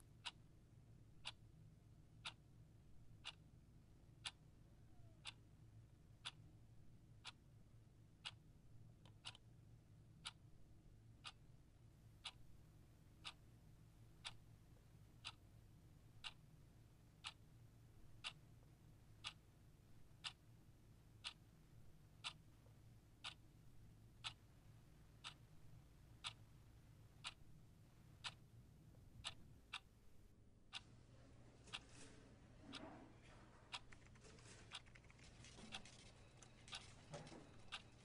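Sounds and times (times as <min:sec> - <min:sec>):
clock ticking: 0:00.1 - 0:00.5, 0:01.2 - 0:01.5, 0:02.1 - 0:02.5, 0:03.1 - 0:05.5, 0:06.2 - 0:06.5, 0:07.1 - 0:07.6, 0:08.2 - 0:09.6, 0:10.2 - 0:10.5, 0:11.1 - 0:11.5, 0:12.2 - 0:12.5, 0:13.2 - 0:13.5, 0:14.2 - 0:14.4, 0:15.2 - 0:15.5, 0:16.2 - 0:16.5, 0:17.2 - 0:17.4, 0:18.2 - 0:20.4, 0:21.2 - 0:21.5, 0:22.2 - 0:23.5, 0:24.2 - 0:24.5, 0:25.2 - 0:25.6, 0:26.2 - 0:26.6, 0:27.2 - 0:27.6, 0:28.2 - 0:30.0, 0:33.7 - 0:38.0.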